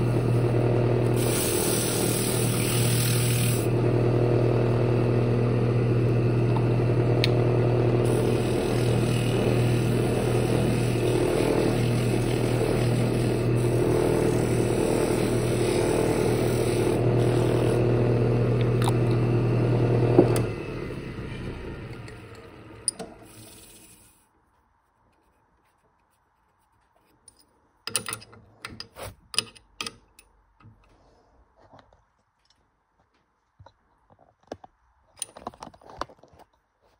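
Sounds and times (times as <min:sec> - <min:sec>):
wood lathe motor hum: 0:00.0 - 0:24.1.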